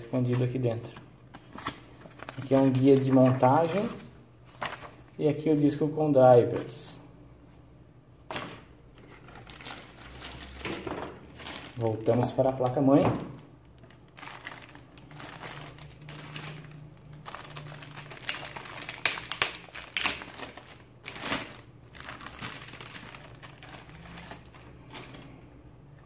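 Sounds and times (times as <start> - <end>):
plastic bag crinkling: 1.7 - 5.0, 8.3 - 25.5.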